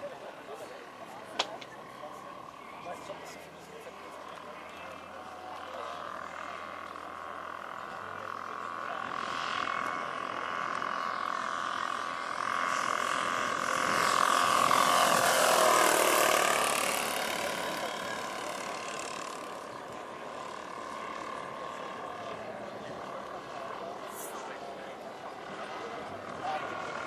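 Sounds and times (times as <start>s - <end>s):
model airplane engines droning: 0.0s - 27.0s.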